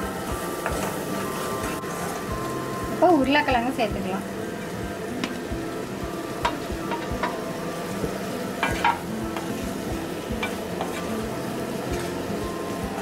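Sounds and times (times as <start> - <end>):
low sizzle: 0.0 - 13.0
spatula scraping and knocking pan: 6.4 - 7.4, 8.0 - 12.3.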